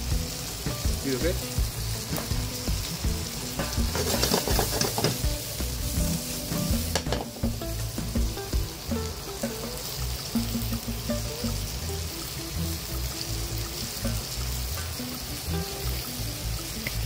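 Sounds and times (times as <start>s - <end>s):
food sizzling in a pan: 0.0s - 17.0s
clattering knocks in pan: 2.1s - 2.6s, 3.6s - 5.4s, 6.7s - 8.7s.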